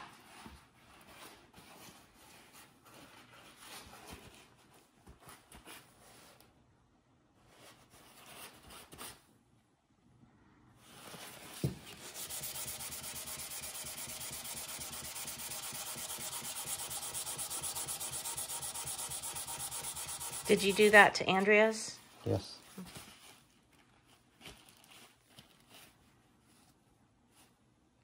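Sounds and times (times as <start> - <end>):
metal scraping on sandpaper: 11.9 - 21.4.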